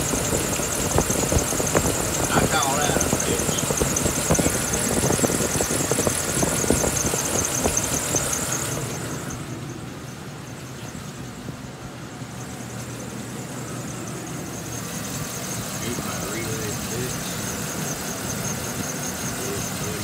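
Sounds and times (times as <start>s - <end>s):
high pulley whine: 0.0s - 20.0s
van engine idling: 0.0s - 20.0s.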